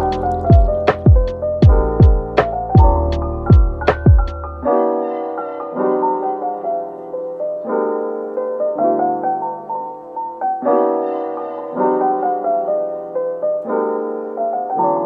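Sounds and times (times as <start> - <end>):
music beat: 0.0 - 4.6
soft electric piano chords: 0.0 - 15.0.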